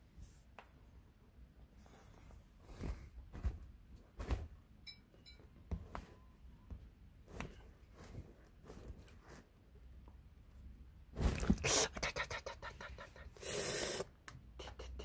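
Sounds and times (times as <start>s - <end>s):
fabric rustling: 1.9s - 4.6s, 7.2s - 9.7s.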